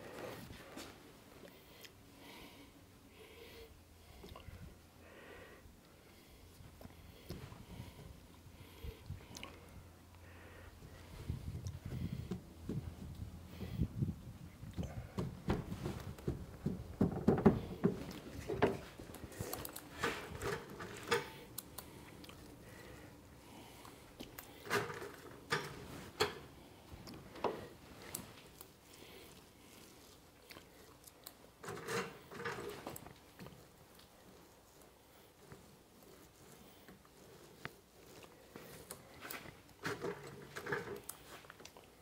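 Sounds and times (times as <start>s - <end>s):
gloved hands pressing cloth: 14.7s - 20.6s.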